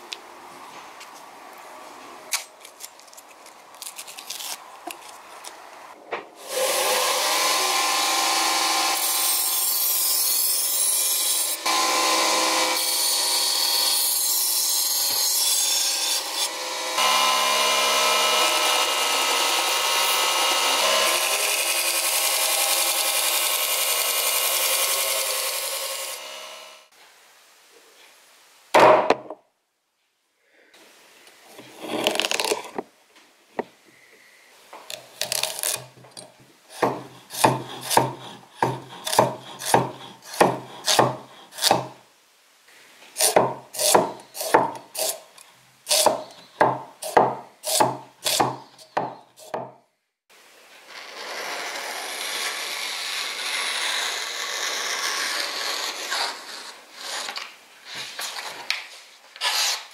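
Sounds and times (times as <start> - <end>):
blade slicing paper: 2.3 - 5.6
cleaver chopping on wooden board: 36.8 - 42.0, 43.2 - 44.8, 45.9 - 49.8.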